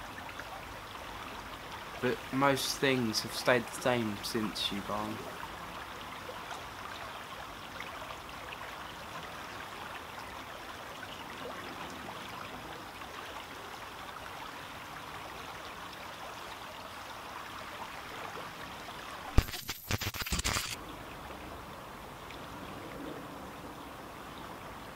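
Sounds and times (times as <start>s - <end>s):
stream flowing: 0.0s - 19.4s, 20.7s - 24.9s
brief crackling burst: 19.4s - 20.8s
sharp click: 19.4s - 20.8s.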